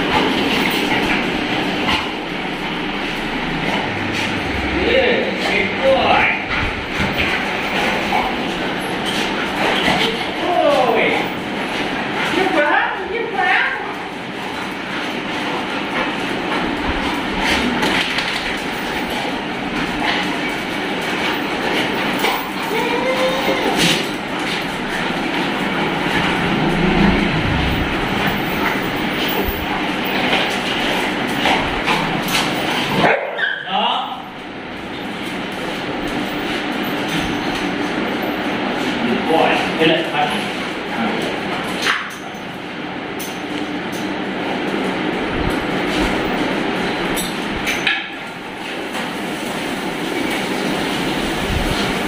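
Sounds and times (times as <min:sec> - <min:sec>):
dog claws clattering on tiles: 0:14.5 - 0:26.7
steady rushing noise: 0:24.6 - 0:30.2.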